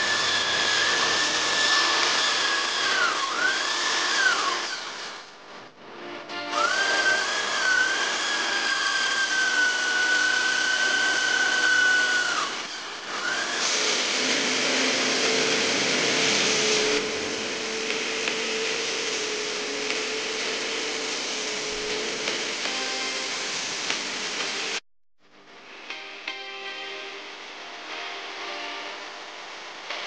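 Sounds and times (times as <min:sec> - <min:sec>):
power drill whine: 0:00.0 - 0:05.3, 0:06.5 - 0:24.8
extraction vacuum suction hiss: 0:06.6 - 0:24.8.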